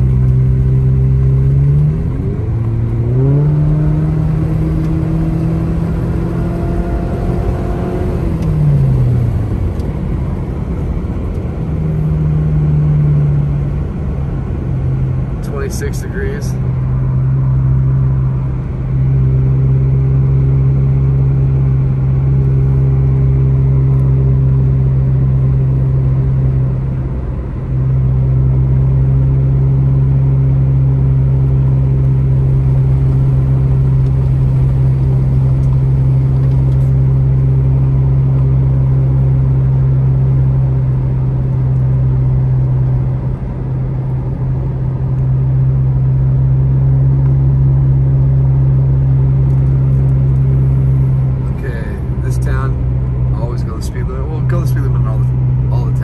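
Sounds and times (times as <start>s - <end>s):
car engine and road drone: 0.0s - 56.0s.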